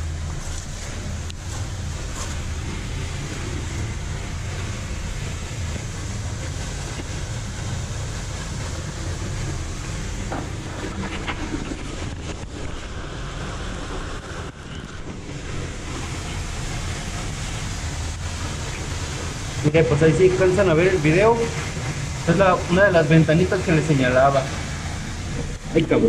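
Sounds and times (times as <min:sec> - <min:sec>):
waterfall rushing: 0:00.0 - 0:26.0
wind rumble on microphone: 0:00.0 - 0:26.0.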